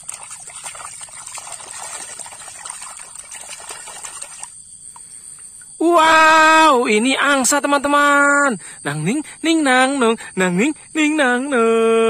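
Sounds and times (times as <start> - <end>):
shallow water splashing: 0.0 - 5.0.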